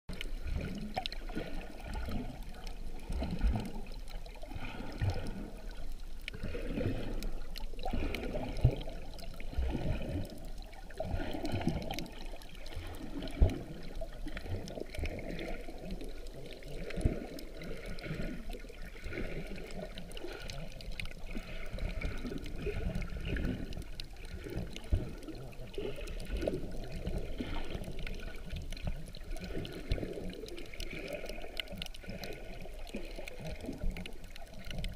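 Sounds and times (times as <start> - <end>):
underwater sloshing and bubbling: 0.1 - 34.9.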